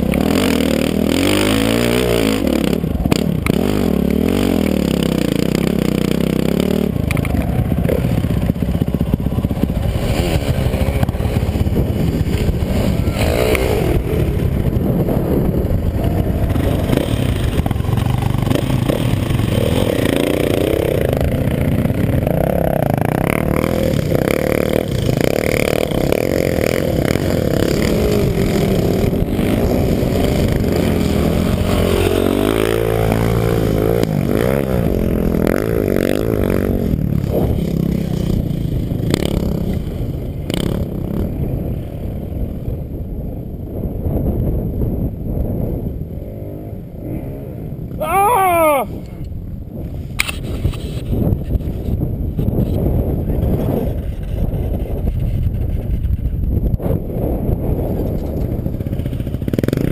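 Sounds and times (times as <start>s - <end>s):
dirt bike engine revving: 0.0s - 41.8s, 58.4s - 59.9s.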